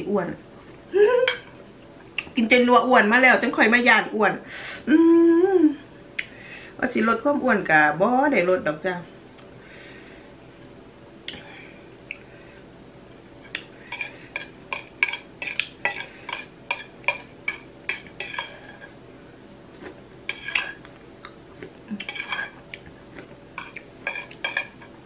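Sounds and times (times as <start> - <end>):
cutlery clinking on a plate: 23.6 - 24.9.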